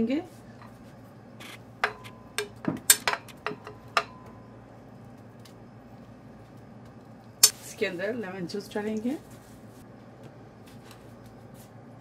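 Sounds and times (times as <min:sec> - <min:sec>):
kitchenware clinking: 0:01.8 - 0:04.4.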